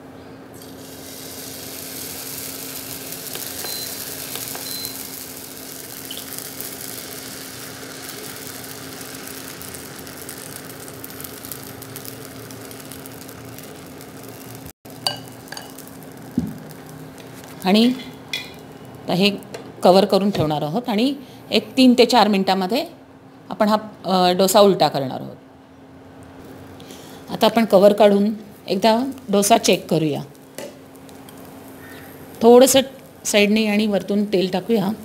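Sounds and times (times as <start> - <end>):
batter sizzling on a hot pan: 0.6 - 19.0, 28.9 - 34.6.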